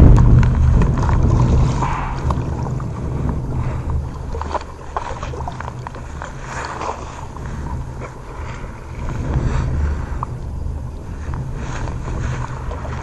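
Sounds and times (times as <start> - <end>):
water splashing: 0.0 - 13.0
wind buffeting microphone: 0.0 - 13.0.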